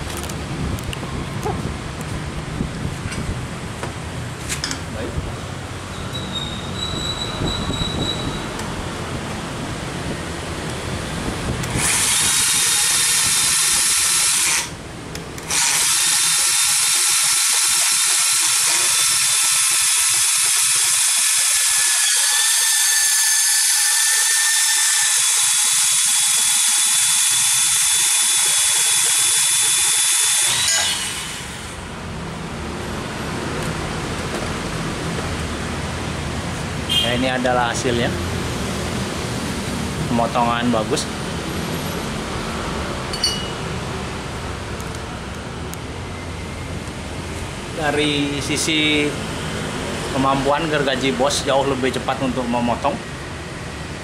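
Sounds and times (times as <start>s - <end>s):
band saw cutting steel: 11.6s - 14.8s, 15.4s - 31.9s, 43.1s - 43.8s.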